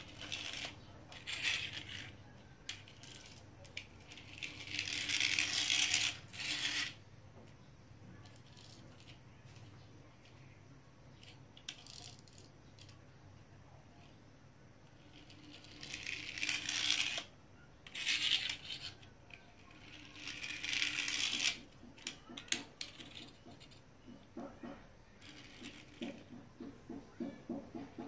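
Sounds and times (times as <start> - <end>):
toy car wheels rolling on tile: 0.0 - 28.0
quick rattling taps: 26.0 - 28.0.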